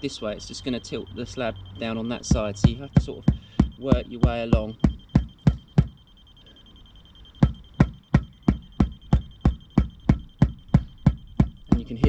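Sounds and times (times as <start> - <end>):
high-pitched laser level bleeps: 0.0 - 12.0
rubber mallet tapping paving slab: 2.3 - 6.0, 7.4 - 12.0.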